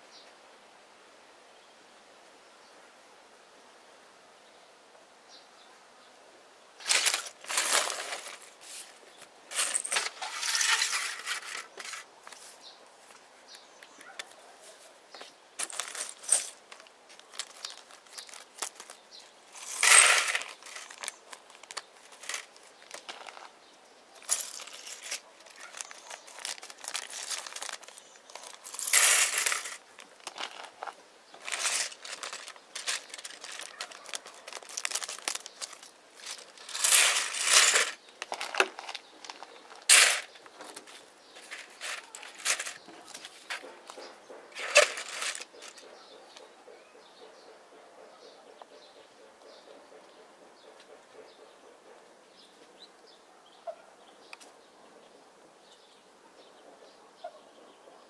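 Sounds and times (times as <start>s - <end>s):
toy bricks clattering onto plate: 6.8s - 8.5s, 9.5s - 12.1s, 15.6s - 23.5s, 24.2s - 40.4s, 41.4s - 42.9s, 44.6s - 45.8s
plastic bags crinkling: 6.8s - 8.9s, 9.5s - 12.1s, 15.6s - 23.5s, 24.2s - 43.7s, 44.6s - 45.8s.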